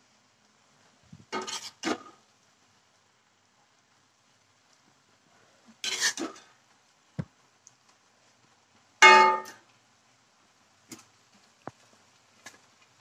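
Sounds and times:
metal utensils clattering against pot: 0:01.4 - 0:02.2
light ticks: 0:07.6 - 0:08.0
loud ringing clang: 0:09.0 - 0:09.5.

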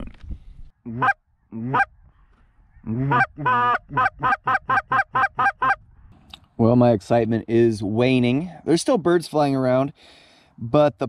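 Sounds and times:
goose call honks and clucks: 0:00.8 - 0:02.0, 0:02.8 - 0:05.8.

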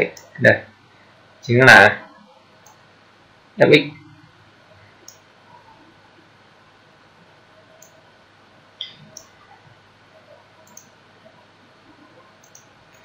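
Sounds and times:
faint room hiss: 0:00.0 - 0:13.0
computer mouse clicks: 0:07.8 - 0:08.0, 0:08.8 - 0:09.4, 0:10.6 - 0:11.0, 0:12.4 - 0:13.0.

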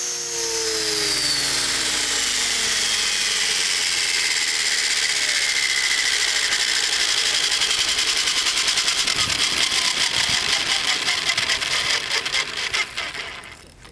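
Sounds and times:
rc helicopter motor whining: 0:00.0 - 0:13.9
rotor blades chopping: 0:00.0 - 0:13.9.

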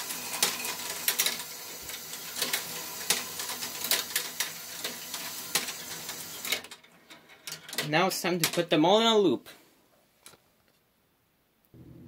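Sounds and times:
plastic gears whirring: 0:00.0 - 0:06.8
plastic parts clicking and clacking: 0:00.0 - 0:08.8.

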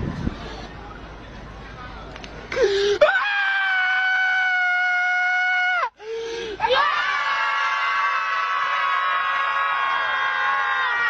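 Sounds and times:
high-pitched screams: 0:06.6 - 0:11.0.

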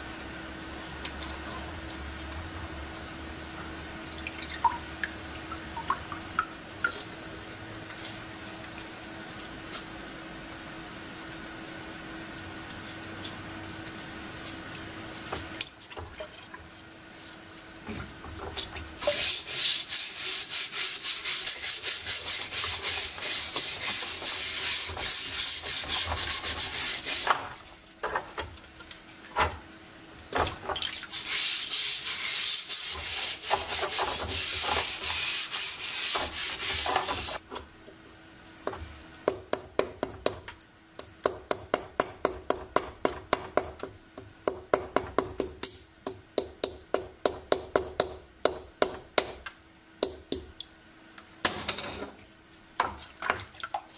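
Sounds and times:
brush scrubbing rusty metal: 0:19.0 - 0:27.9, 0:31.1 - 0:37.4.

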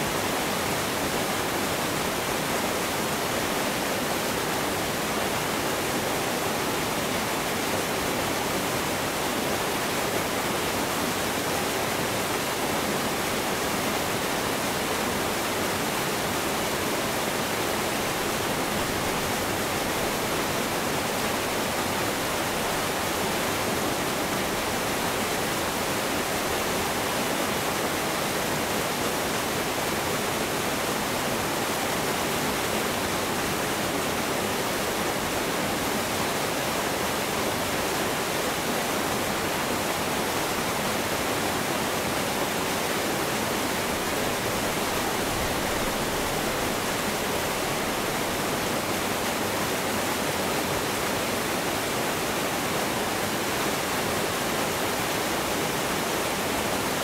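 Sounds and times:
waterfalls pouring: 0:39.4 - 0:57.0.

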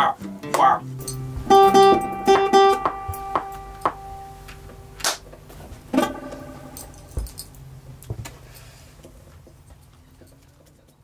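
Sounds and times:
strummed guitar chord: 0:00.0 - 0:05.2, 0:05.8 - 0:07.2
acoustic guitar picking: 0:00.0 - 0:07.4.

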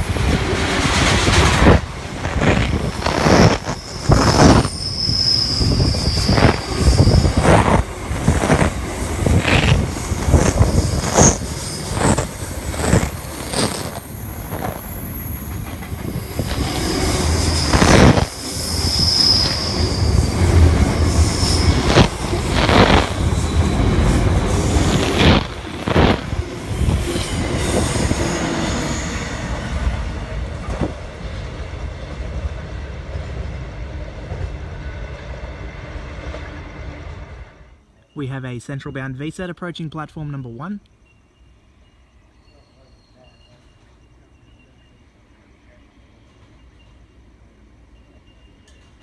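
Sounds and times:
high-pitched wheel squeal: 0:01.6 - 0:29.8, 0:41.9 - 0:44.9.

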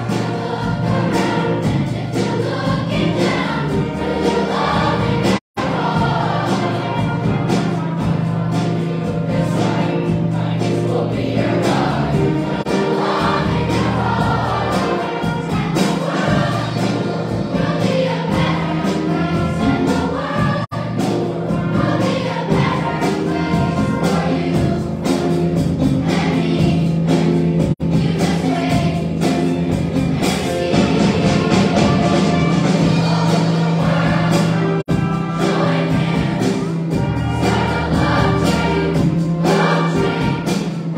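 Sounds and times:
choir singing: 0:00.0 - 0:40.9
string orchestra accompanying: 0:00.0 - 0:40.9.

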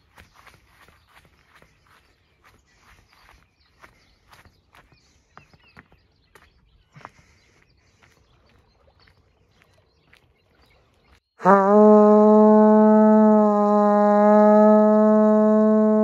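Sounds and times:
bird chirps: 0:00.0 - 0:11.4.

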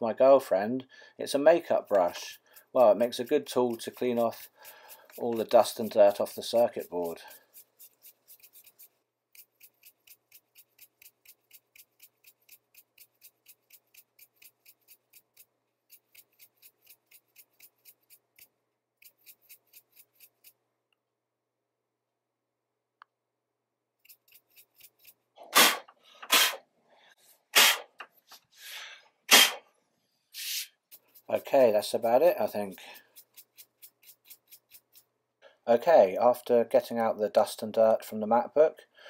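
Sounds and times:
brush bristle strokes: 0:01.6 - 0:20.6, 0:24.0 - 0:28.6, 0:30.1 - 0:35.1
short bursts of air: 0:25.5 - 0:26.6, 0:27.5 - 0:28.0, 0:28.6 - 0:29.6, 0:30.3 - 0:30.9.

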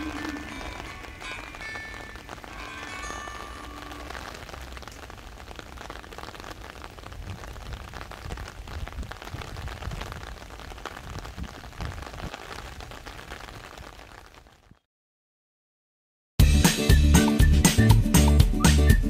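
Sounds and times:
rain falling: 0:00.0 - 0:14.8.

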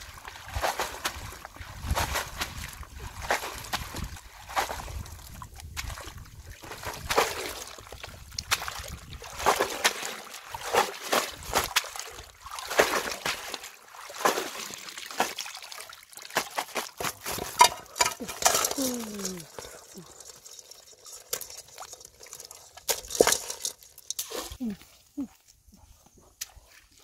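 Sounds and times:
basket sloshing in water: 0:00.0 - 0:24.6
water trickling: 0:13.6 - 0:24.6.

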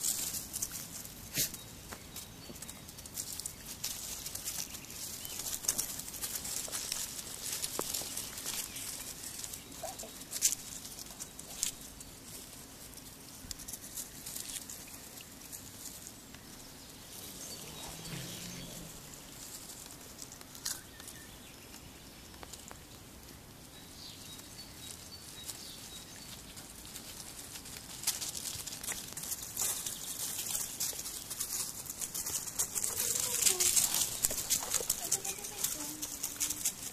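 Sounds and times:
paws rustling through dry leaves: 0:00.0 - 0:36.9
sharp leaf crackles: 0:02.5 - 0:23.1, 0:24.0 - 0:36.9.

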